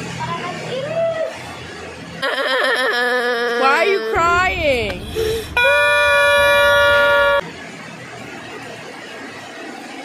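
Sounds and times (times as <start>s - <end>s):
loud horn blast: 5.0s - 7.5s.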